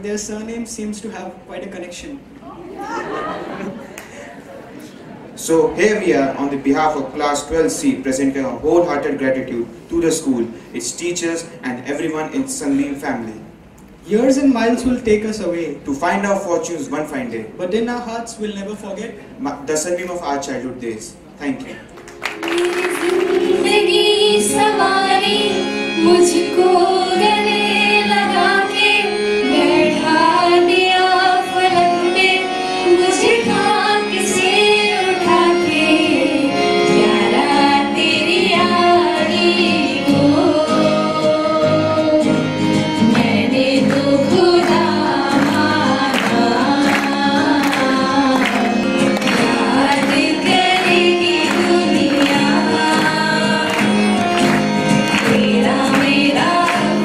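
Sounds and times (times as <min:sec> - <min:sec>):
instrumental accompaniment: 0:21.8 - 0:57.0
girls singing into microphones: 0:22.4 - 0:57.0.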